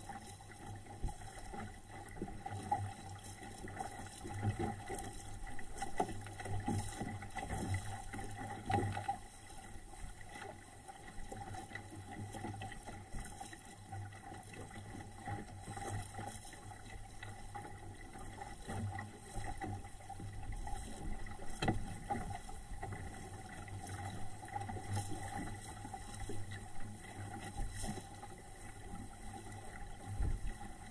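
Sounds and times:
water splashing against hull: 0.0s - 30.9s.

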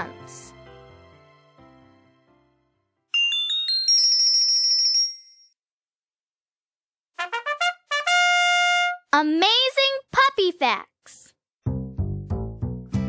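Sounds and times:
twinkling bell chime: 3.1s - 5.6s
short trumpet fanfare: 7.2s - 9.0s.

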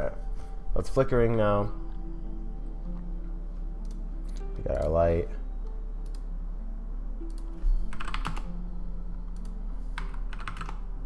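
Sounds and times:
typing on computer keyboard: 7.3s - 8.5s, 10.0s - 10.8s.

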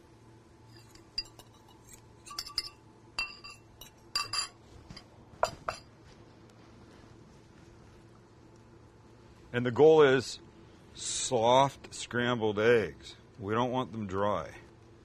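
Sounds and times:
spatula clinking against jug: 0.7s - 4.6s.

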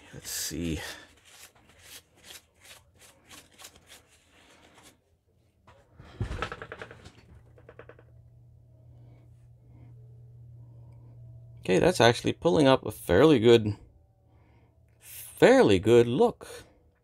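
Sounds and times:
thump and rustle: 6.0s - 7.2s.

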